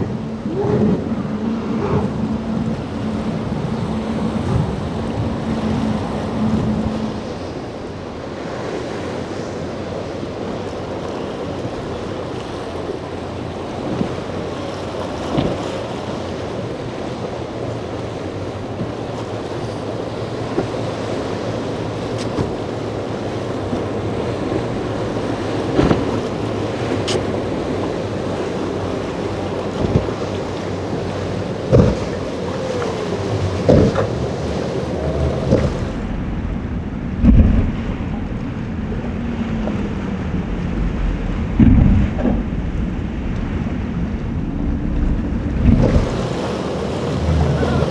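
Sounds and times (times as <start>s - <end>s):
boat engines droning: 0.0s - 47.9s
choppy water: 0.0s - 47.9s
wind buffeting microphone: 0.0s - 47.9s
sharp water slaps: 25.6s - 27.6s, 29.7s - 34.6s, 35.3s - 36.0s.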